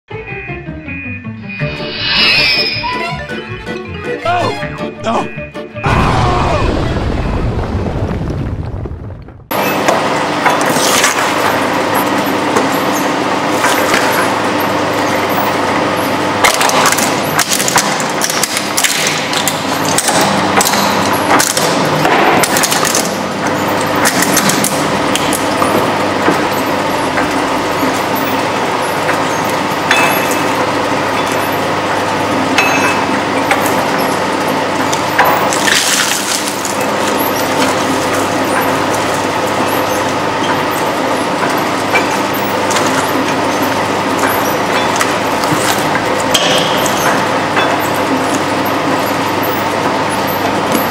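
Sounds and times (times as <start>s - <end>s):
crunching and cracking: 35.5s - 38.1s.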